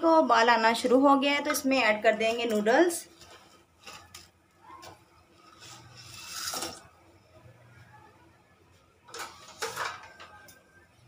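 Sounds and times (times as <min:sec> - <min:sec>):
utensil scraping steel saucepan: 0:05.3 - 0:06.9.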